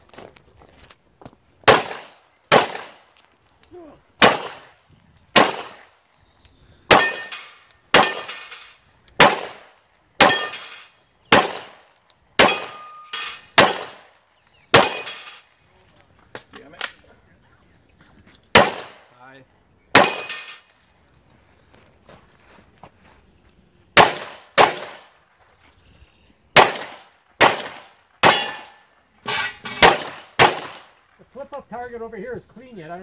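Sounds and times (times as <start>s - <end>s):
handgun shots: 1.7s - 3.0s, 4.2s - 4.7s, 5.3s - 5.9s, 6.9s - 8.5s, 9.2s - 11.8s, 12.4s - 14.0s, 14.7s - 15.4s, 18.5s - 19.0s, 20.0s - 20.6s, 24.0s - 25.0s, 26.6s - 28.8s, 29.6s - 30.9s.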